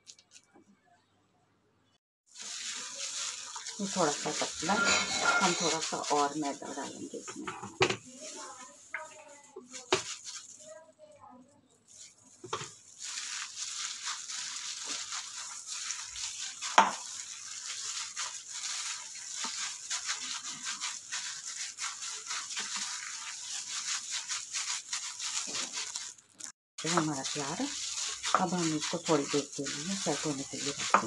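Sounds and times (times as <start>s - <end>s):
plastic glove crinkling: 0.0s - 0.5s, 2.3s - 31.0s
mince squishing: 2.4s - 7.0s, 13.0s - 31.0s.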